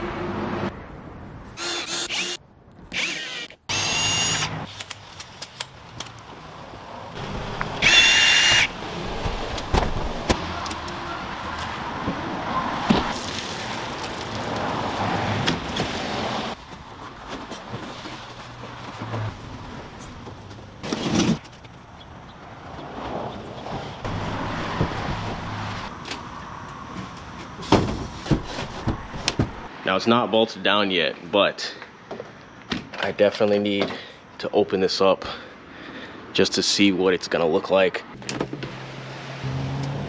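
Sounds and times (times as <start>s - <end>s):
cordless drill whirring: 1.6s - 4.6s, 7.8s - 8.7s
wooden panels knocking and scraping: 27.6s - 29.7s.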